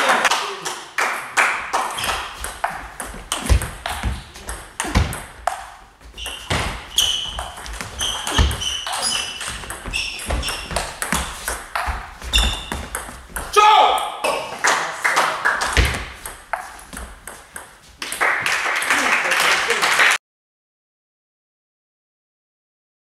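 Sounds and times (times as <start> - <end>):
shoes squeaking on floor: 1.9 - 13.6, 15.7 - 18.0
table tennis ball ticking: 2.0 - 13.5.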